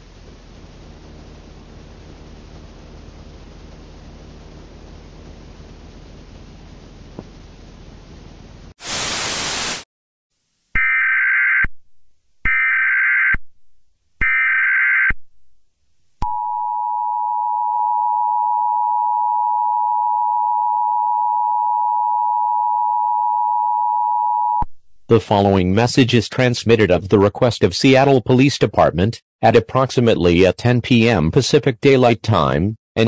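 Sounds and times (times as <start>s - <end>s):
burst of static: 8.8s - 9.9s.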